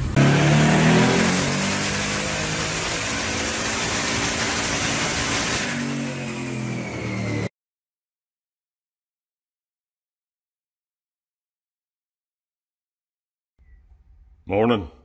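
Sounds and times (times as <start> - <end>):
truck engine revving at high rpm: 0.0 - 7.5.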